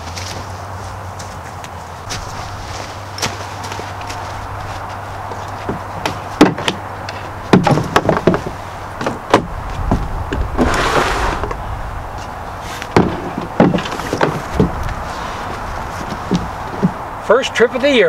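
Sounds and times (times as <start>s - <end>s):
rustling sound: 0.0s - 6.4s, 9.6s - 17.1s.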